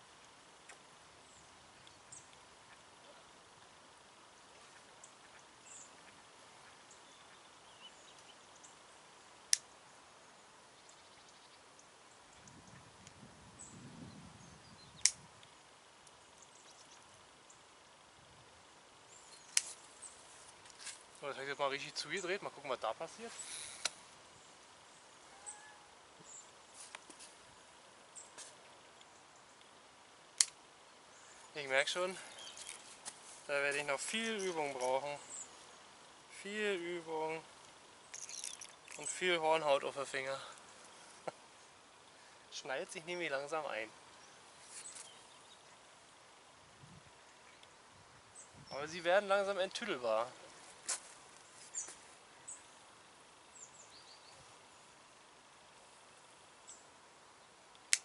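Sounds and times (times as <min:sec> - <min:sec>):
faint outdoor hiss: 0:00.0 - 0:58.0
sharp click: 0:15.0 - 0:15.2, 0:30.4 - 0:30.6, 0:57.8 - 0:58.0
sharp loud click: 0:30.4 - 0:30.6.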